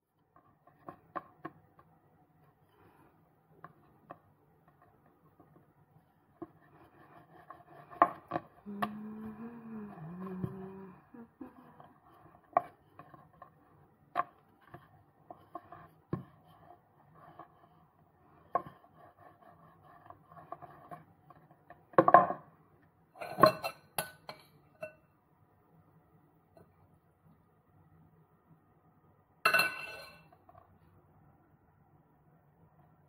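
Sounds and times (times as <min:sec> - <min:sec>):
rolling pin rolling dough: 0:03.5 - 0:11.0, 0:11.7 - 0:22.1.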